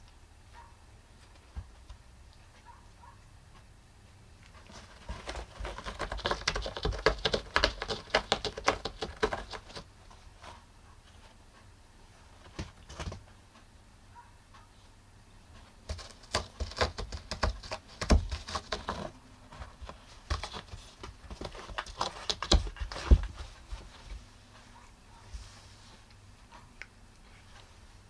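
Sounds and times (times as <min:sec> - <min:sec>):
cat scratching at a floor mat: 0:04.6 - 0:10.5, 0:15.8 - 0:24.2.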